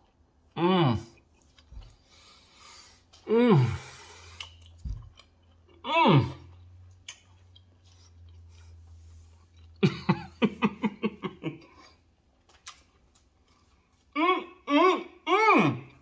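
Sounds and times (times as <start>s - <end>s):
man humming mmm: 0.6s - 1.2s, 3.2s - 4.1s, 5.8s - 6.4s, 14.2s - 16.0s
chewing mouth clicks: 4.3s - 5.7s, 6.5s - 8.8s, 11.8s - 13.8s.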